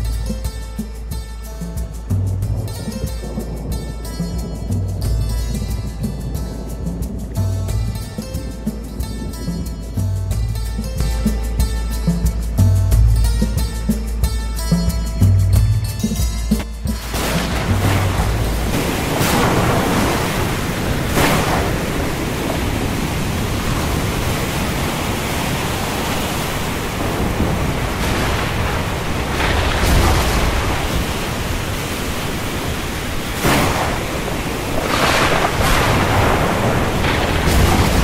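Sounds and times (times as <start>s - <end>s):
heavy rain and wind: 0.0s - 38.0s
thunder cracks: 17.0s - 38.0s.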